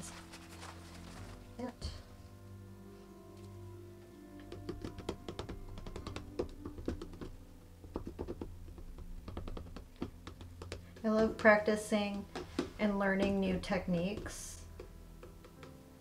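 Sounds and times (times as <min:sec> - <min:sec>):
background music: 0:00.0 - 0:16.0
plastic cups tapping and clicking: 0:04.4 - 0:11.4, 0:12.1 - 0:15.8.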